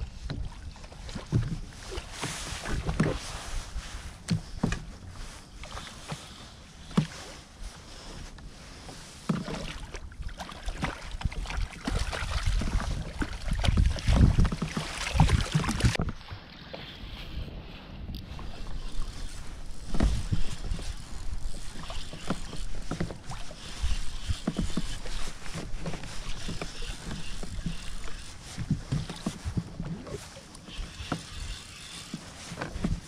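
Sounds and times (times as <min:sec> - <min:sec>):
water slapping against kayak hull: 0:00.2 - 0:03.4, 0:09.3 - 0:16.2, 0:19.2 - 0:31.4
wind buffeting microphone: 0:11.2 - 0:16.3.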